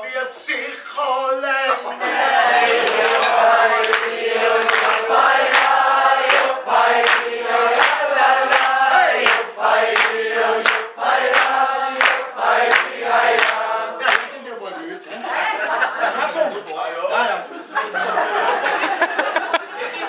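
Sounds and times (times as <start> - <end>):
voices singing together: 0.1 - 16.1.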